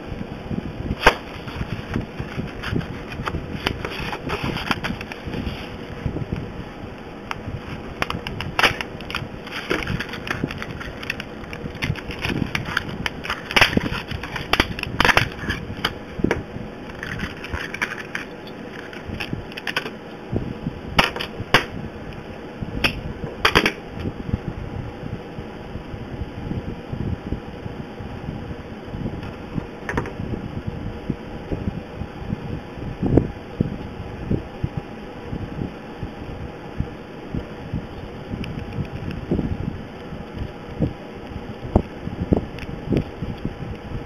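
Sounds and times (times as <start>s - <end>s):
plastic packaging crackling: 1.0s - 6.0s, 7.3s - 20.0s.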